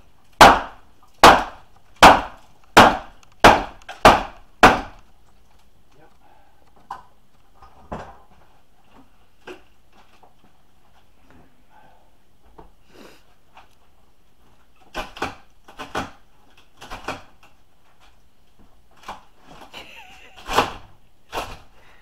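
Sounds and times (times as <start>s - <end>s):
hard blows on wooden framing: 0.0s - 5.1s.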